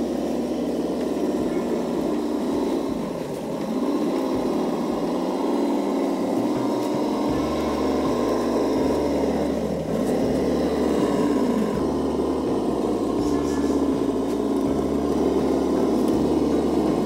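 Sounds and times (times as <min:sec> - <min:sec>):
toy truck motor droning: 0:00.0 - 0:17.0.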